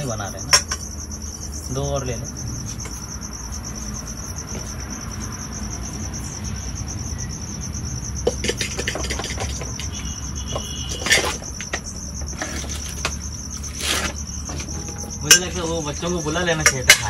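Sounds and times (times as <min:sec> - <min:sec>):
crickets chirping: 0:00.0 - 0:17.0
pots and container clattering: 0:08.3 - 0:15.7.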